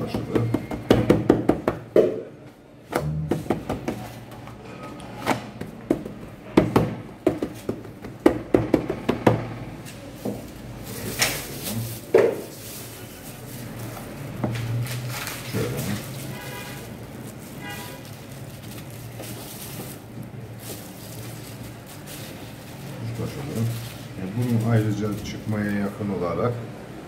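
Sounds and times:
hands slapping dough: 0:05.6 - 0:09.4.

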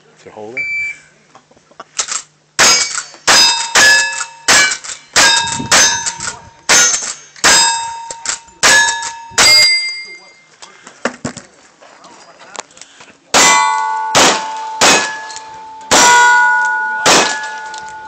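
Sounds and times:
steel target ringing: 0:02.6 - 0:10.4, 0:13.3 - 0:18.0
rifle shots: 0:13.4 - 0:17.8.

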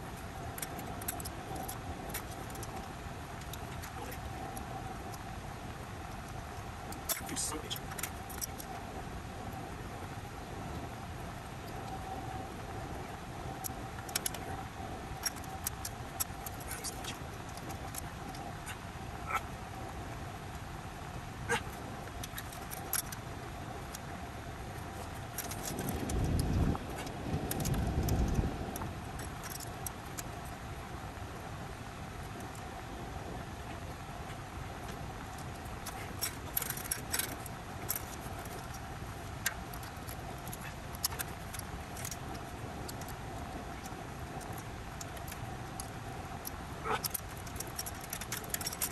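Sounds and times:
steady background hum: 0:00.0 - 0:48.9
tools clicking on copper tubing: 0:43.8 - 0:48.9.

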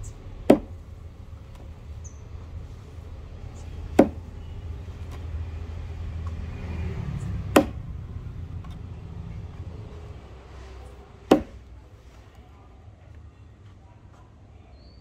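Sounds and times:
steady low rumble: 0:00.0 - 0:12.0
axe chopping into wood: 0:00.4 - 0:00.8, 0:03.9 - 0:04.3, 0:07.4 - 0:07.8, 0:11.3 - 0:11.6.

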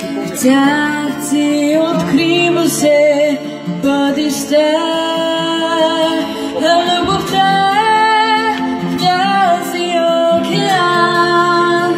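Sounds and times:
young woman singing: 0:00.0 - 0:11.9.

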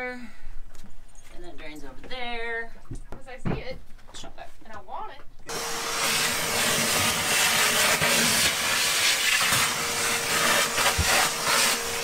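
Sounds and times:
vacuum cleaner running: 0:05.5 - 0:12.0.

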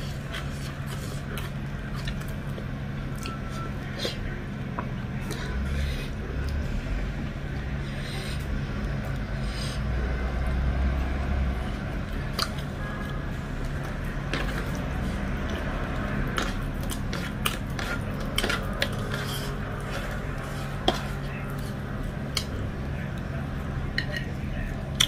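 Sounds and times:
steady low hum: 0:00.0 - 0:25.0
chewing mouth sounds: 0:12.3 - 0:12.7.

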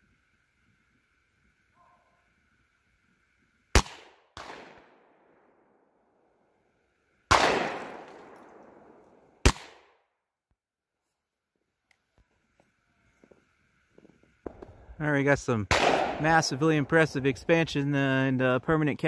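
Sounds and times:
rifle shots: 0:03.7 - 0:05.0, 0:07.3 - 0:10.0, 0:15.7 - 0:17.3
loud bang with long tail: 0:15.7 - 0:17.2.

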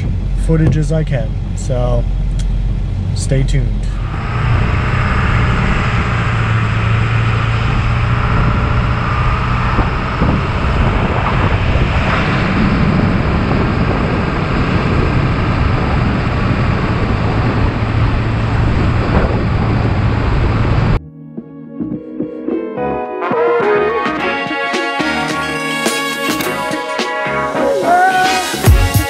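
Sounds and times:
motor vehicle running: 0:00.0 - 0:21.0.

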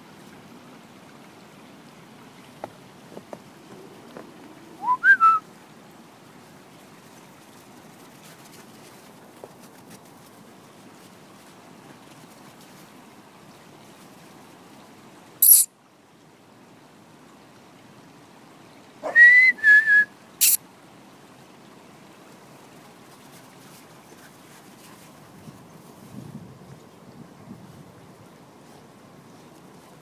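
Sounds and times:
steady outdoor hiss: 0:00.0 - 0:30.0
person whistling: 0:04.8 - 0:05.4, 0:19.2 - 0:20.6
short sharp hiss: 0:20.4 - 0:20.6.

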